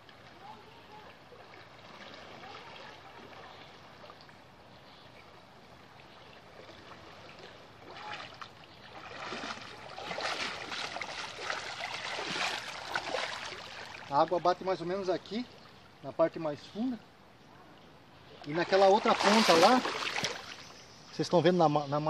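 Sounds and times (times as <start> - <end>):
person wading through water: 0.0 - 16.0, 17.9 - 20.8
river water running: 0.0 - 22.0.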